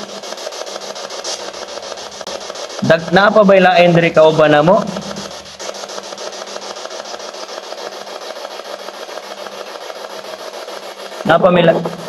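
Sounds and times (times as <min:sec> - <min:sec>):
pulsing radio static hiss: 0:00.0 - 0:12.0
person speaking: 0:02.8 - 0:05.4, 0:11.2 - 0:12.0.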